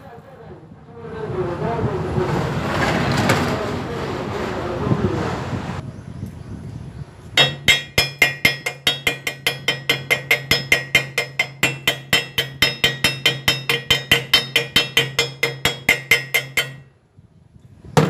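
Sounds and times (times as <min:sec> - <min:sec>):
hammer striking steel: 0:07.4 - 0:17.0.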